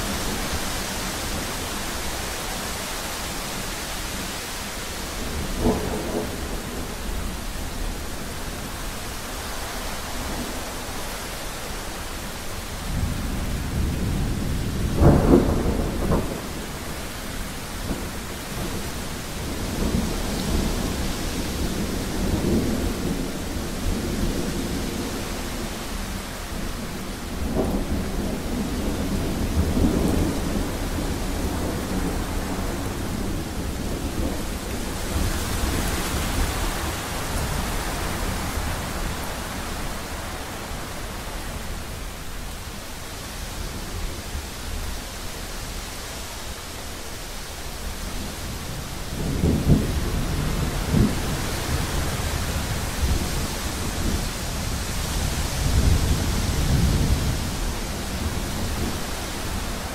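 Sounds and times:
steady rain: 0:00.0 - 0:59.9
rolling thunder: 0:05.2 - 0:08.6, 0:12.9 - 0:41.8, 0:48.2 - 0:59.9
sharp thunderclap: 0:13.8 - 0:16.9.

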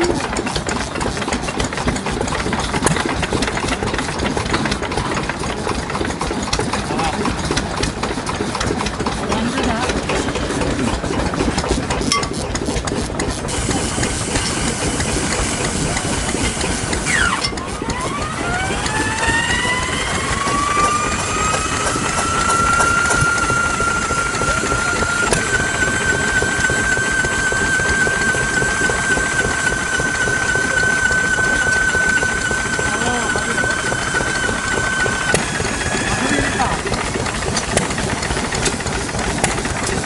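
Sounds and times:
diesel engine running: 0:00.0 - 0:40.0.

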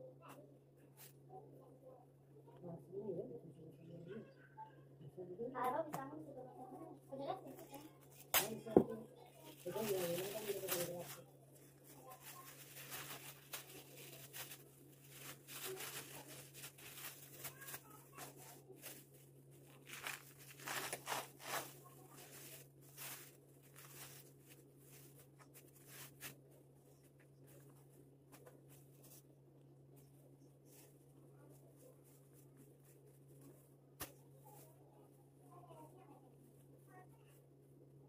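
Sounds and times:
steady low hum: 0:00.0 - 0:38.0
plastic bags crinkling: 0:07.6 - 0:26.4.

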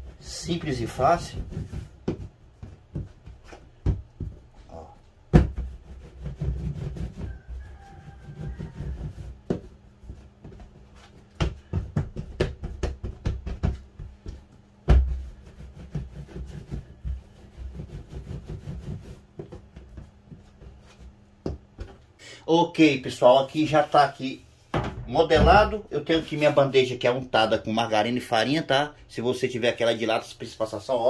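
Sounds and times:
dough slapping on metal bench: 0:08.6 - 0:22.0.

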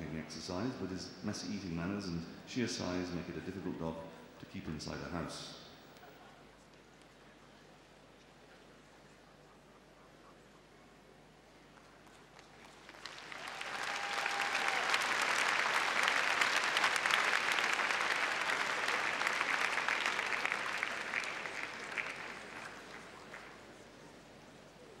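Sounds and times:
crowd applauding: 0:12.4 - 0:24.0.

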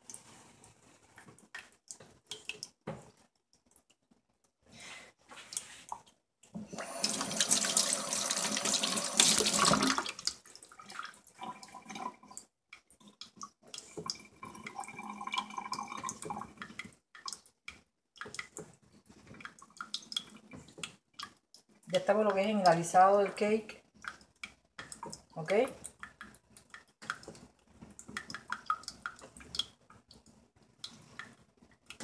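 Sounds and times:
tap water running into sink: 0:06.6 - 0:12.4, 0:13.2 - 0:17.3.

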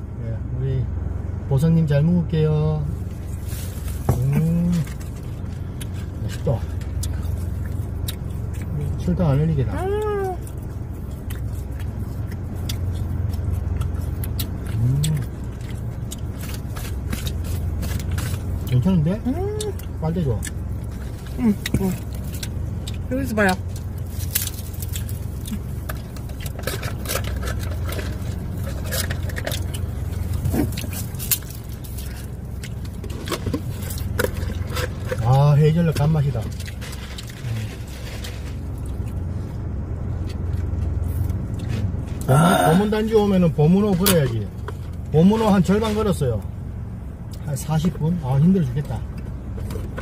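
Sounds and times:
car cabin hum: 0:00.0 - 0:50.0
person humming: 0:09.7 - 0:10.4
crunchy snack chewing: 0:10.4 - 0:18.8, 0:19.6 - 0:35.4.

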